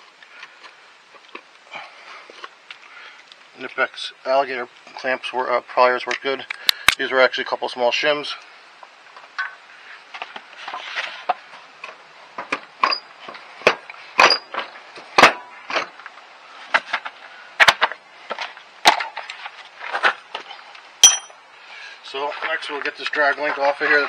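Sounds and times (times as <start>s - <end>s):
hand tools clicking and knocking: 21.0s - 21.4s
metallic ring: 21.0s - 21.4s.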